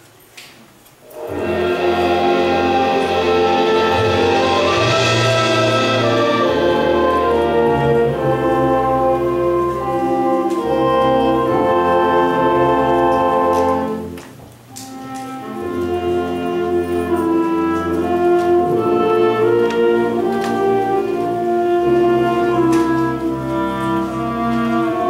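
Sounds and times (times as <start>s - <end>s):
concert band playing held chords: 1.2s - 14.2s.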